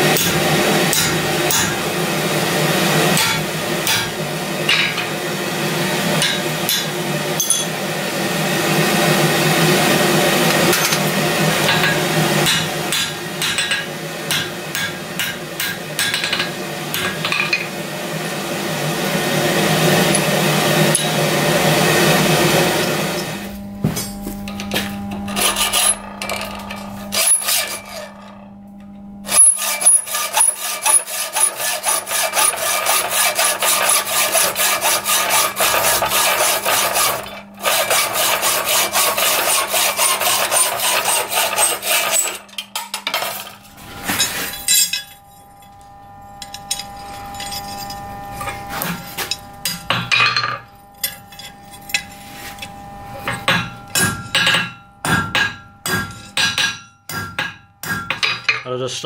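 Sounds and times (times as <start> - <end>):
hacksaw cutting steel: 0.0 - 1.9, 3.1 - 5.1, 6.2 - 7.7, 10.5 - 17.7, 19.8 - 21.3, 24.5 - 28.4, 29.2 - 45.1, 46.4 - 58.6.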